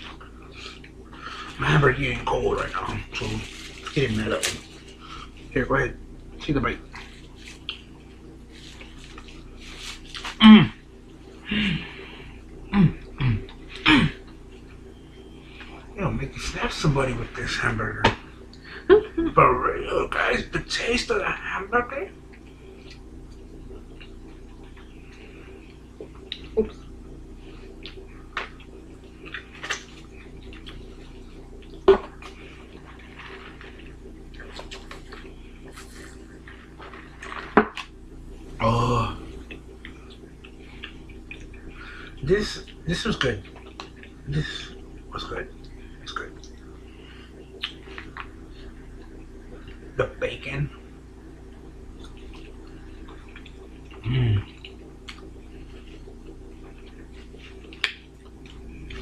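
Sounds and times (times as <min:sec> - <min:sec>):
steady low hum: 0:00.0 - 0:59.0
person chewing food: 0:06.9 - 0:10.4, 0:22.3 - 0:38.5, 0:39.1 - 0:42.8, 0:43.4 - 0:44.2, 0:51.6 - 0:59.0
person humming mm: 0:11.4 - 0:12.0, 0:12.7 - 0:14.2, 0:38.6 - 0:39.3, 0:54.0 - 0:54.5.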